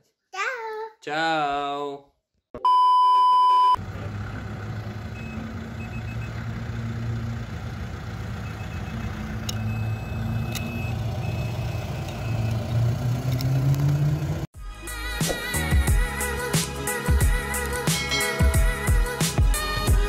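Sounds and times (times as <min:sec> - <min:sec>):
car engine idling: 0:03.8 - 0:14.5.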